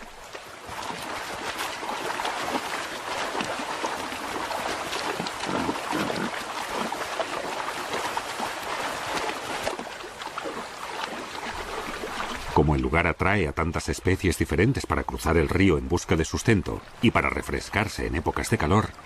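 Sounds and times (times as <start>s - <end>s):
animals splashing through river: 0.0s - 19.0s
river water rushing: 0.0s - 19.0s.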